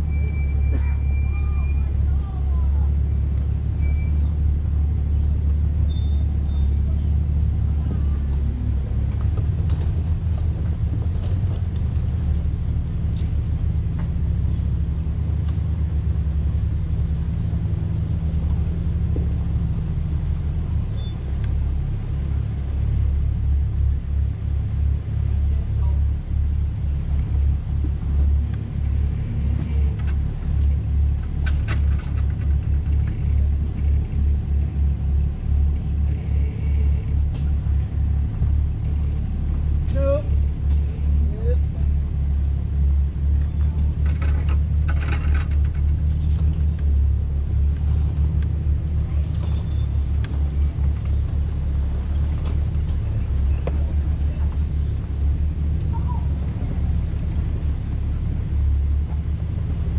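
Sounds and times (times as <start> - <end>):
engine rumbling: 0.0 - 59.9.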